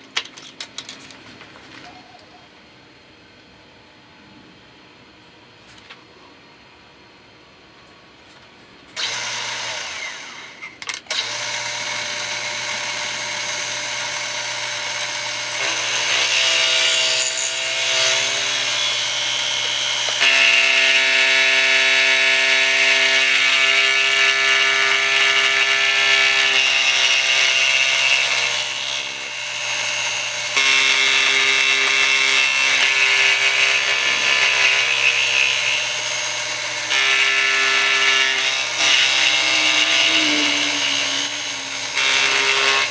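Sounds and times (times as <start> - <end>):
cutter milling metal: 9.0 - 42.9.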